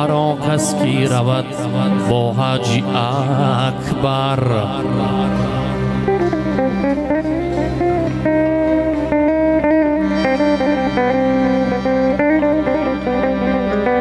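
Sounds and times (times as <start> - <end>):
plucked lutes and electric guitar: 0.0 - 14.0.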